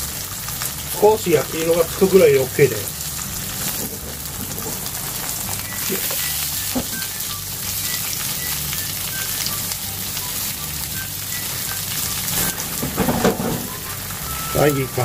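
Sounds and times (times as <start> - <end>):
tofu sizzling in frying pan: 0.0 - 15.0.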